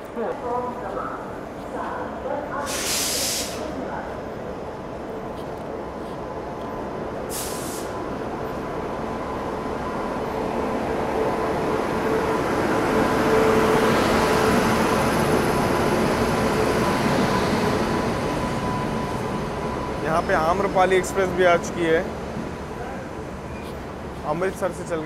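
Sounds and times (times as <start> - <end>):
train wheels rumbling on rail: 0.0 - 25.0
brief hiss: 2.6 - 3.7, 7.3 - 8.0.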